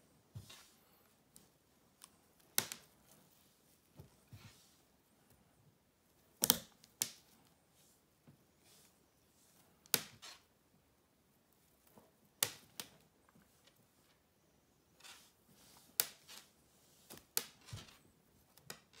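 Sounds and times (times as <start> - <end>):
netting needle clicks and knocks: 6.4 - 7.4.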